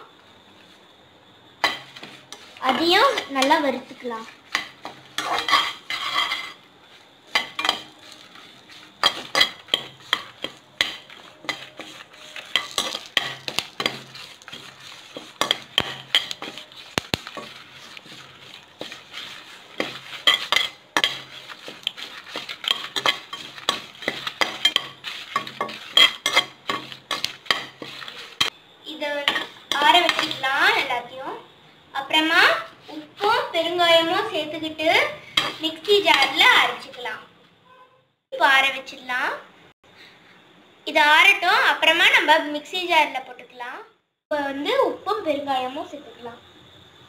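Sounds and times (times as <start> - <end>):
faint sizzle: 0.0 - 37.3, 38.4 - 47.0
spatula scraping metal pan: 1.6 - 28.6, 29.2 - 30.8, 32.9 - 37.0.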